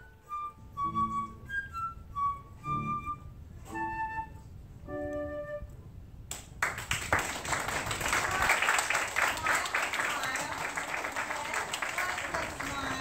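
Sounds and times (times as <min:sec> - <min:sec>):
flute playing: 0:00.0 - 0:05.9
audience applause: 0:06.6 - 0:13.0.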